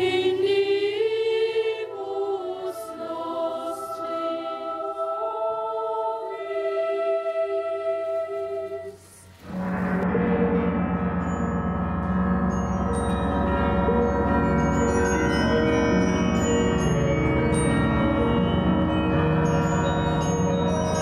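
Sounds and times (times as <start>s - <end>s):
church bells ringing: 9.5s - 21.0s.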